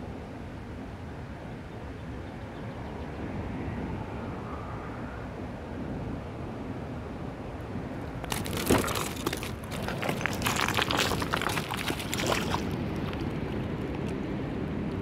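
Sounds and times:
gravel crunching: 8.0s - 14.2s.

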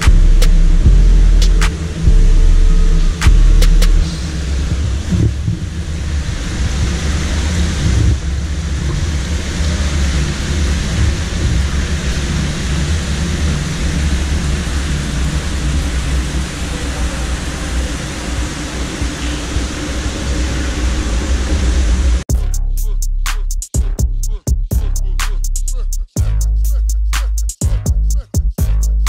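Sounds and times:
deep constant rumble: 0.0s - 29.0s
water cascading down fountain: 4.3s - 22.2s.

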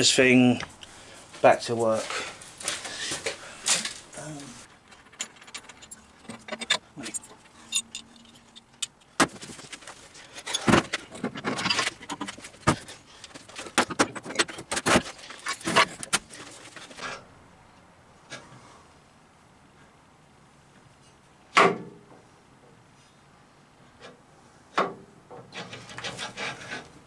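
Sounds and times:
metal clunks and rattles: 4.8s - 17.1s.

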